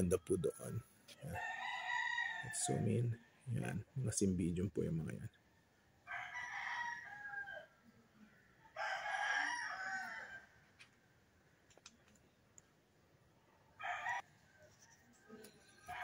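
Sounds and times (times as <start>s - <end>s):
rooster crowing: 1.3s - 3.1s, 6.0s - 7.9s, 8.6s - 10.6s, 13.8s - 16.0s.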